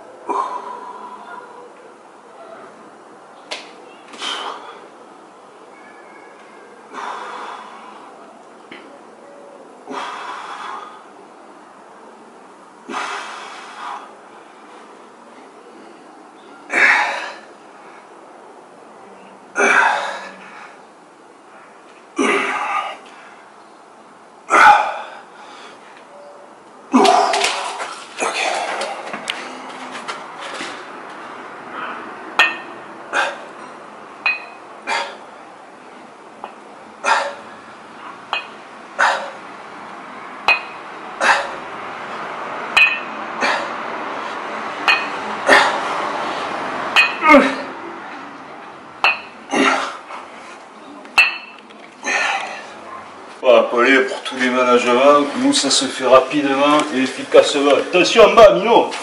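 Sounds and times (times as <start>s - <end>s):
kettlebell metallic clinks: 32.4s - 32.8s, 33.6s - 34.7s, 38.3s - 38.6s, 40.4s - 40.9s, 42.8s - 43.2s, 44.8s - 45.2s, 47.0s - 47.3s, 49.0s - 49.4s, 51.2s - 51.6s.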